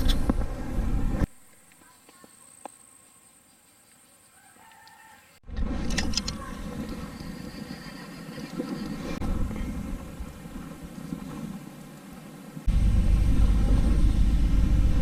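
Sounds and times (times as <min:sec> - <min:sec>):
distant rooster crowing: 0:04.3 - 0:05.4
loud low rumbling on microphone: 0:09.0 - 0:11.5, 0:12.7 - 0:15.0.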